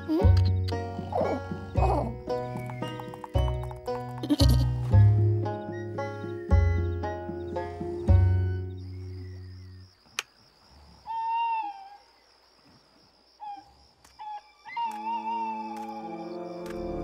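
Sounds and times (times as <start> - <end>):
music: 0.0 - 9.3, 14.9 - 17.0
night insects chirping: 0.0 - 17.0
owl hooting: 11.0 - 12.1, 13.4 - 16.6.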